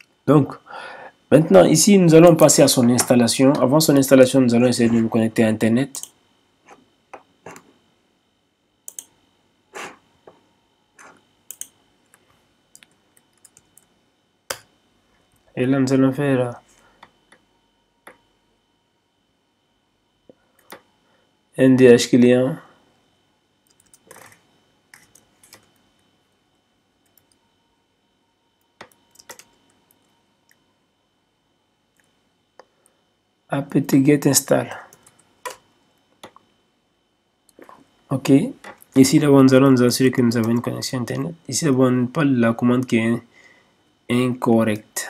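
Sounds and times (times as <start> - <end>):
computer mouse clicking: 5.9 - 6.8, 8.9 - 9.1, 11.0 - 13.9, 23.6 - 24.4, 27.0 - 27.4, 28.8 - 30.6
keyboard clicking: 8.9 - 9.1, 11.5 - 11.7, 28.8 - 29.5.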